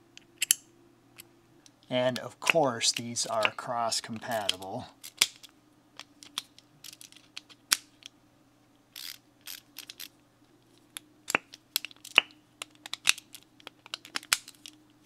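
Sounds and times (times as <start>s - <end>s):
ratcheting screwdriver parts clicking: 9.0s - 10.1s.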